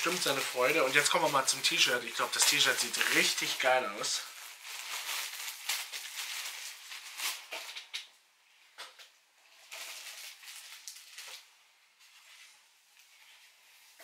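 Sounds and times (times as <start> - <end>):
plastic bag crinkling: 0.0 - 8.1, 9.4 - 12.5.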